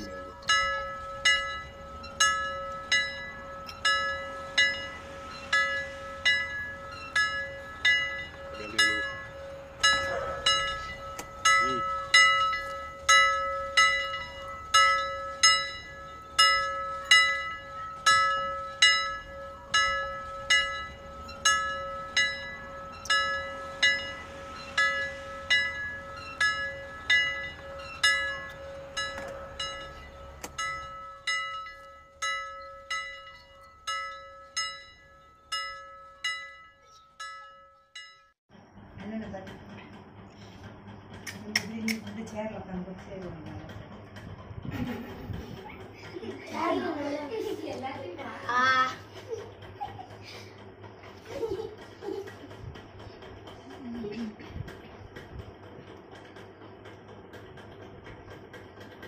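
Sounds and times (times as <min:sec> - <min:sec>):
temple bell ringing: 0:00.0 - 0:38.4.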